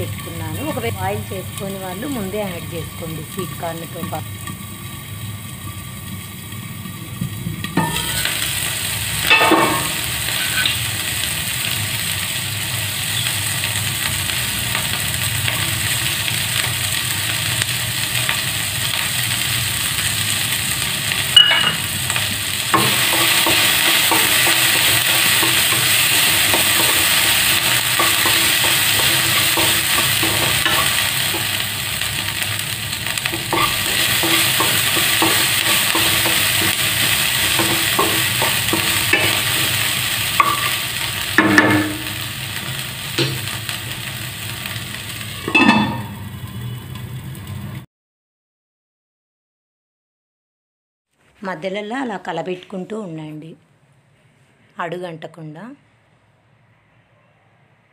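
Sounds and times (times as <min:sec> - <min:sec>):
vegetables sizzling in oil: 0:00.0 - 0:47.8
sharp clanks against pan: 0:07.8 - 0:08.4, 0:09.3 - 0:10.8, 0:21.4 - 0:21.9, 0:41.4 - 0:42.2, 0:45.5 - 0:46.2
spatula scraping a pan: 0:09.3 - 0:10.8, 0:21.4 - 0:42.2.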